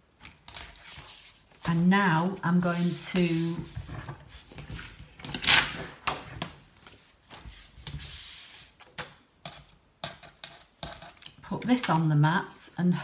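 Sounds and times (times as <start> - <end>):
paper rustle: 0.2 - 1.9
paper sliding hiss: 7.3 - 8.8.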